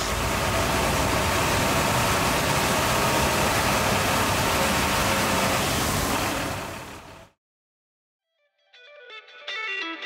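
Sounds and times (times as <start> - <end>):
truck engine running: 0.0 - 7.4.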